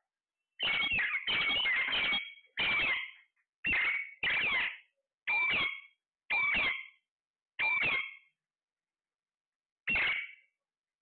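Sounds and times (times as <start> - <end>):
parakeets calling loudly: 0.6 - 7.0, 7.6 - 8.3, 9.9 - 10.4.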